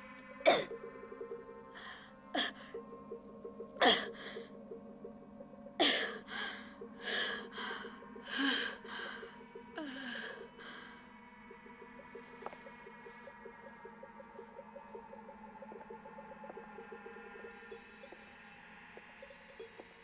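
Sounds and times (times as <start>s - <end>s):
faint background music: 0.0s - 20.0s
woman gasping for breath: 5.8s - 10.9s.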